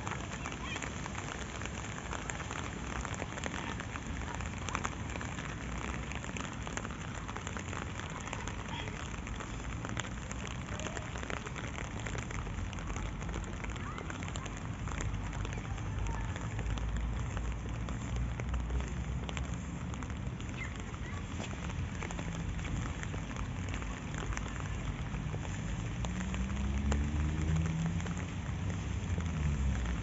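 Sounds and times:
rain on wet asphalt and grass: 0.0 - 30.0.

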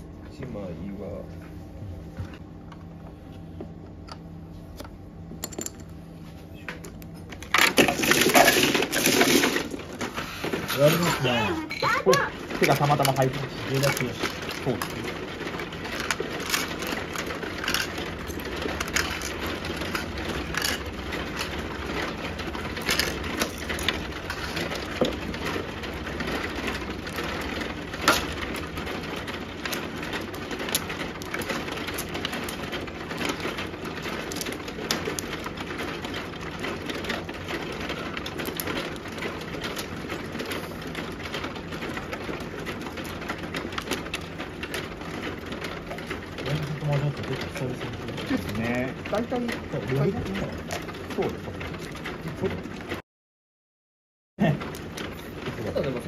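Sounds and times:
mahjong tiles clacking: 7.5 - 11.1, 11.8 - 52.1.

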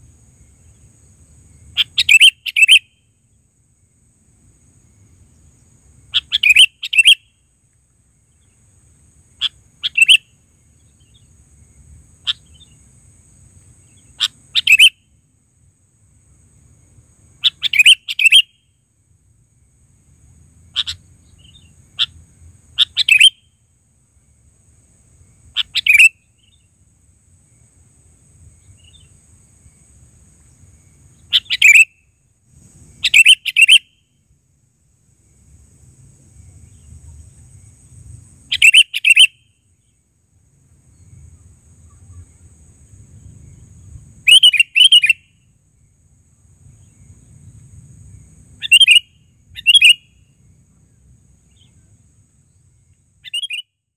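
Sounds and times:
bulbul chirping: 38.5 - 39.3.

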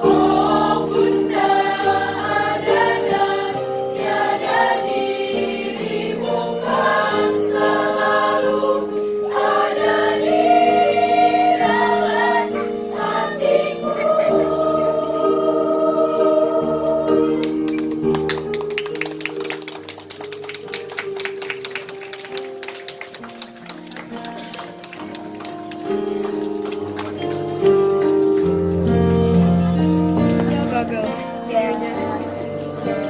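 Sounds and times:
girls' choir singing: 0.0 - 17.7, 31.5 - 33.0.

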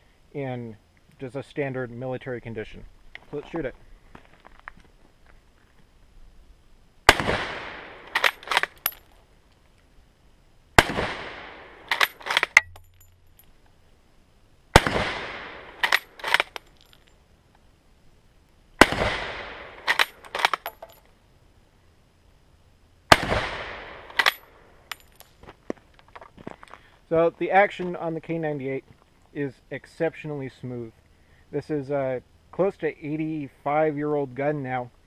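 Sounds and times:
rifle shots with echo: 7.1 - 8.9, 10.8 - 12.6, 14.7 - 16.6, 18.8 - 20.7, 23.1 - 24.5
rifle bolt metallic clicks: 8.0 - 9.2, 11.9 - 13.6, 15.6 - 17.1, 19.8 - 21.0, 24.0 - 25.3.

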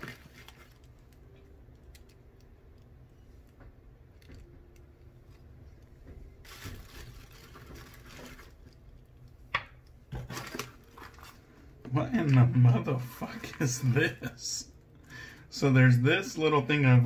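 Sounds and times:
low steady hum: 0.0 - 17.0
paper packing filler rustling: 6.4 - 8.7, 10.1 - 11.4.

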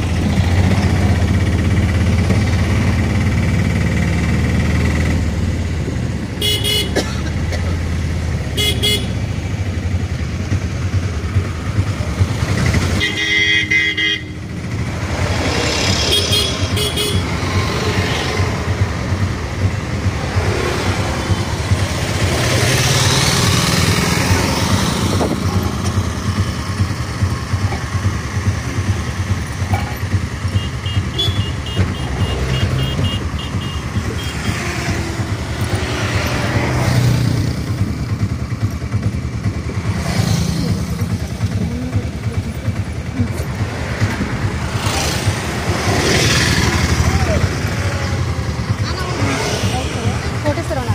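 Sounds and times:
passing vehicles: 0.0 - 50.9
vehicle engine rumble: 0.0 - 50.9
car horns honking: 6.4 - 7.1, 8.4 - 9.4, 12.8 - 14.8, 15.9 - 18.6, 30.3 - 35.8.

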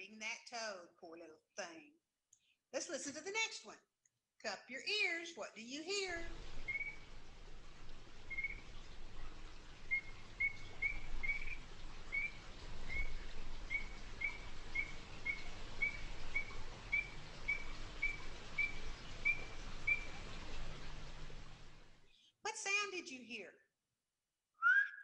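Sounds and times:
faint background hiss: 4.4 - 23.3
chorus frogs whistling: 6.2 - 21.2.

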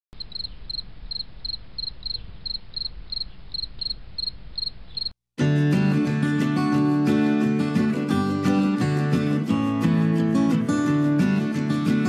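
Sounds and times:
cricket chirping: 0.2 - 5.2
acoustic guitar music: 5.4 - 12.0.

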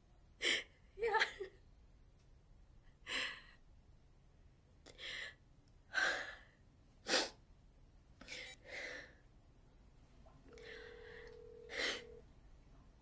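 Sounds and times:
woman gasping and sighing: 10.5 - 12.2.

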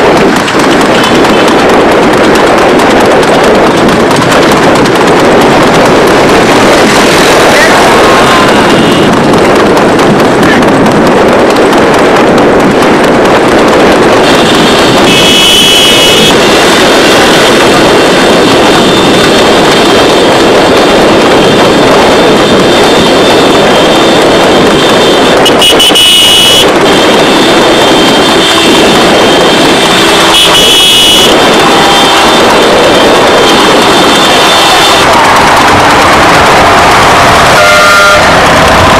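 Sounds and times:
horse cart rushing at speed: 0.0 - 38.9
road noise: 0.0 - 38.9
wind on microphone: 0.0 - 38.9
high horn tones: 14.2 - 20.4, 21.3 - 38.9.

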